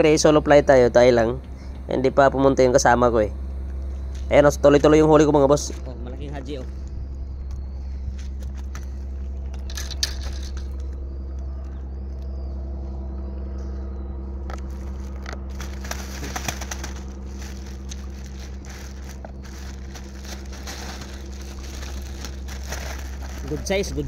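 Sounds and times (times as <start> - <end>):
steady low hum: 0.0 - 24.0
faint high bird chirps: 5.8 - 15.0
hands handling fish crackling: 14.5 - 24.0.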